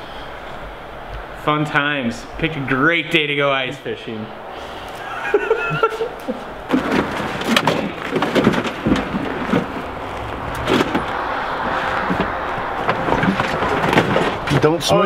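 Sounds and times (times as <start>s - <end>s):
plastic bags rustling: 5.9s - 14.8s
gear knocking and clunking: 6.5s - 15.0s.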